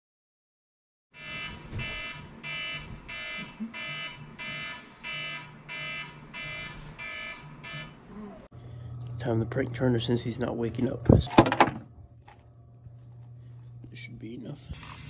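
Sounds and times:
alarm beeping: 0:01.2 - 0:08.0.

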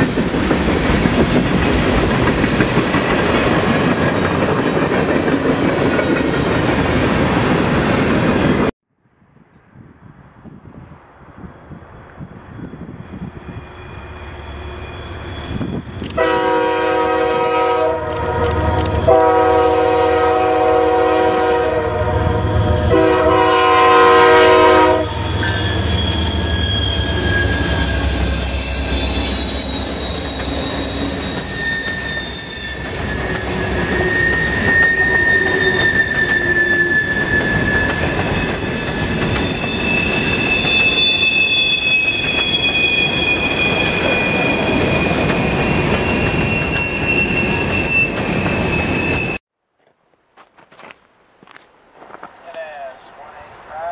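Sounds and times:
train wheels squealing: 0:12.0 - 0:16.4, 0:17.5 - 0:19.4, 0:24.8 - 0:49.4
locomotive horn blasts: 0:16.1 - 0:25.6.

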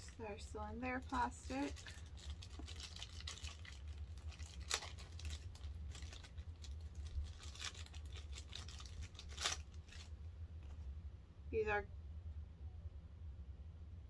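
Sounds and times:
plastic bag crinkling and tearing: 0:00.0 - 0:10.2.

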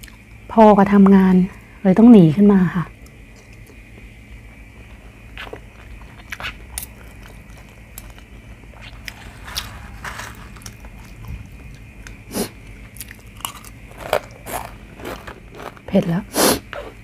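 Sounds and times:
person chewing food: 0:03.0 - 0:15.9.

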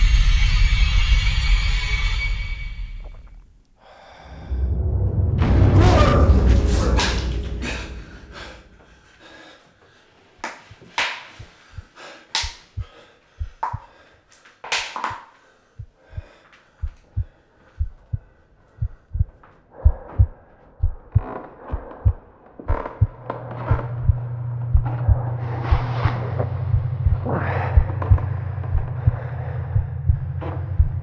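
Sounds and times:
man breathing heavily: 0:03.8 - 0:04.9, 0:07.3 - 0:14.6, 0:15.4 - 0:22.3, 0:26.7 - 0:31.0
heartbeat thumps: 0:12.7 - 0:13.9, 0:15.8 - 0:31.0.

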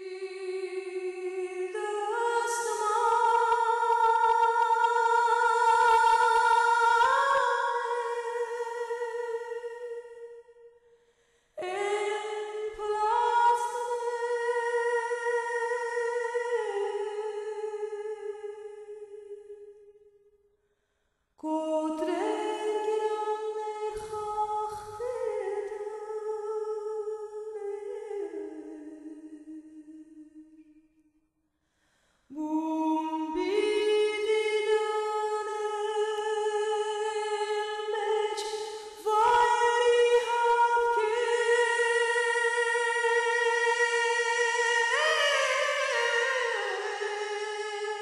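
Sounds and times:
person singing slow melody: 0:00.0 - 0:10.1.

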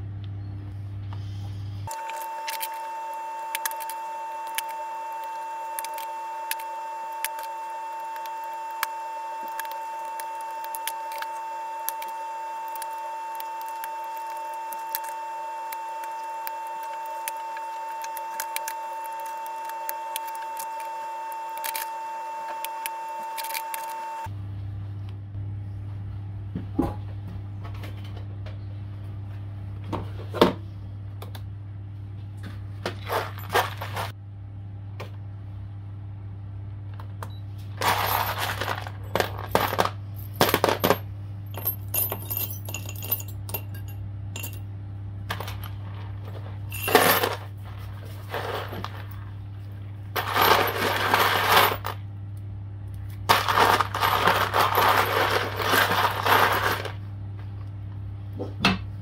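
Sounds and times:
low hum: 0:00.0 - 0:59.0
small metal pieces clinking: 0:37.8 - 0:44.6, 0:45.3 - 0:49.3, 0:50.2 - 0:52.0, 0:53.3 - 0:57.0.

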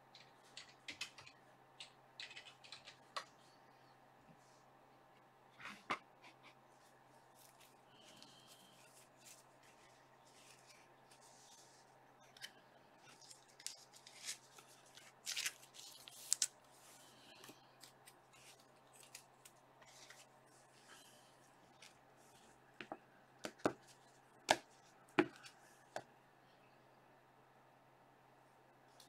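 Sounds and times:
cards rustling and clicking: 0:07.4 - 0:20.3.

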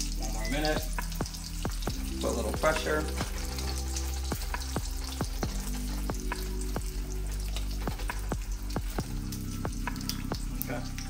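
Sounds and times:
steak sizzling in a pan: 0:00.0 - 0:11.0.

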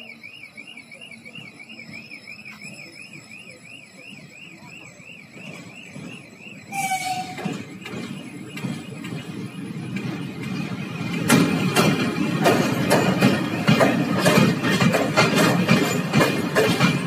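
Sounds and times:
train rumble: 0:01.2 - 0:17.0
locomotive horn blast: 0:06.7 - 0:07.5.

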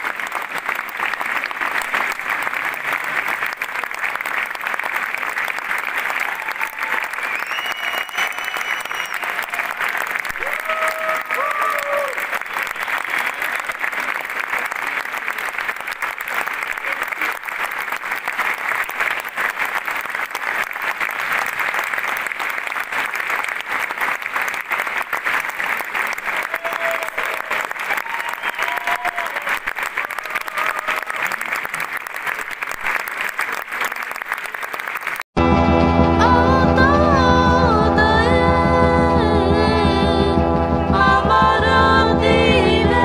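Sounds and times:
audience applauding: 0:00.0 - 0:35.3
music: 0:35.4 - 0:43.0.

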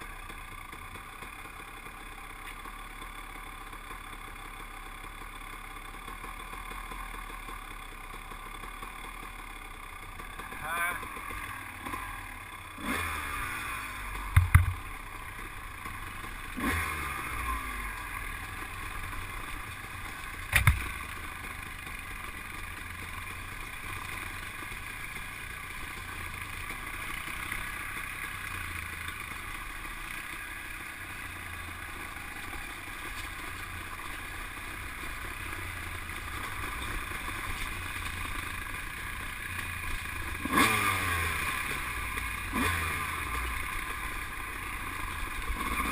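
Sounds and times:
atv engine revving: 0:00.0 - 0:45.9
sharp knocks: 0:14.3 - 0:14.8, 0:20.5 - 0:20.9.

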